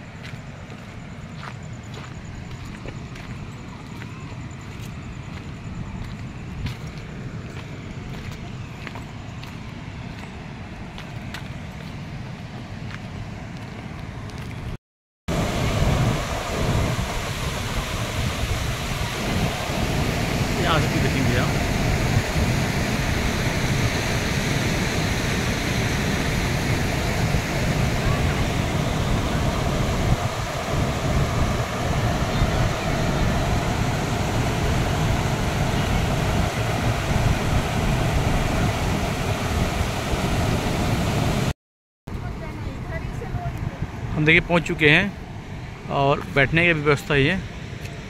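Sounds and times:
wind buffeting microphone: 0.1 - 41.5
waterfall rushing: 15.3 - 41.5.

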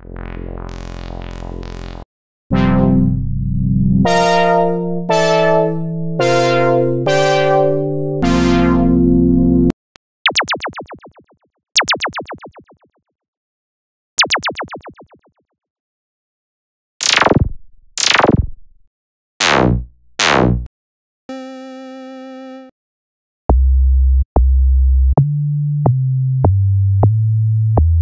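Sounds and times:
synthesizer held note: 2.5 - 9.7
falling laser-like zaps: 17.0 - 18.4.

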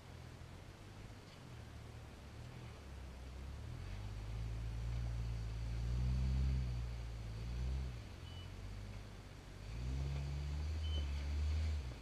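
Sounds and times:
buggy engine revving under load: 3.5 - 12.0.

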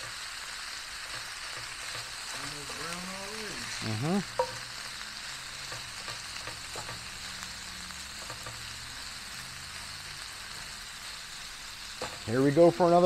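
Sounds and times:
meat sizzling in a pan: 0.0 - 13.0
utensil tapping and scraping: 1.0 - 3.0, 4.4 - 4.6, 5.6 - 7.1.

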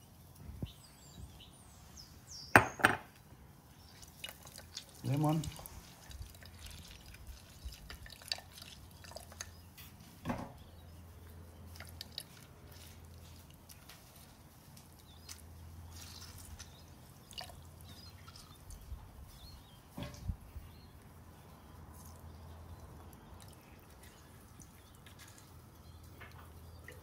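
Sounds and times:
lemon juice dripping into oil: 3.7 - 10.0, 10.6 - 19.1, 21.9 - 27.0.

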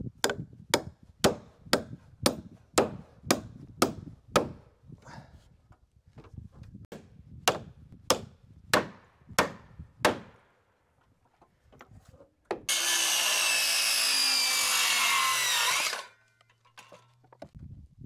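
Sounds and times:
power saw cutting wood: 12.7 - 16.2.

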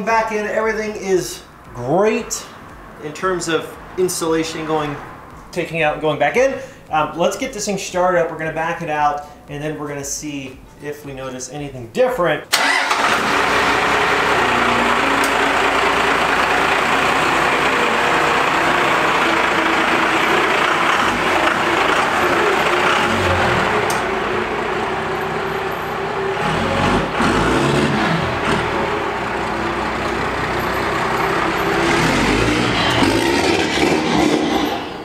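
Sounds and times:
diesel engine running: 12.5 - 35.0.

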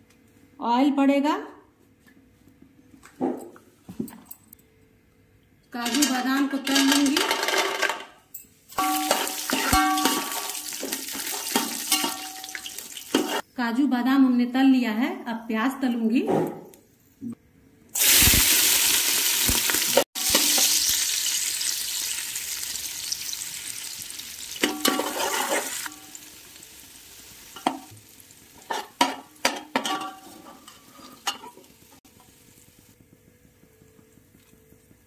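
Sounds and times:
onions sizzling in hot oil: 8.7 - 13.4, 18.0 - 33.2
metal spoon scraping a pot: 8.8 - 13.4, 24.6 - 25.9, 28.6 - 31.6.

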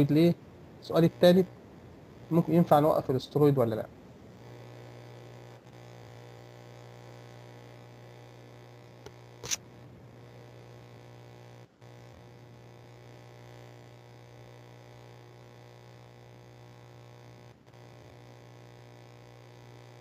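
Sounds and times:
low electrical hum: 0.0 - 20.0
sharp click: 9.0 - 9.7.

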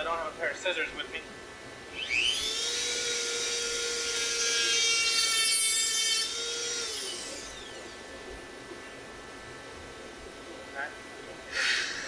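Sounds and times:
rotary tool whining: 1.9 - 8.6, 11.5 - 12.0.

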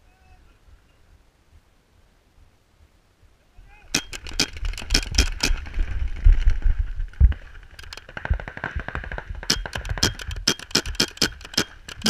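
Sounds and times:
paintball markers firing: 3.9 - 5.6, 7.3 - 12.0.

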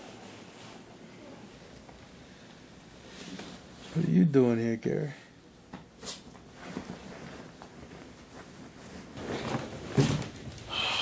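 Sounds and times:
bedding rustling: 0.0 - 2.1, 5.6 - 10.7.

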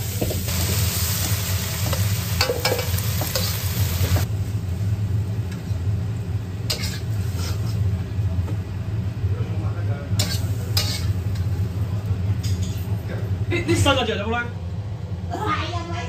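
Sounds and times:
metal spatula scraping a wok: 0.0 - 4.2, 6.7 - 7.9, 10.2 - 11.6
stir-fry sizzling in a wok: 0.0 - 13.8.

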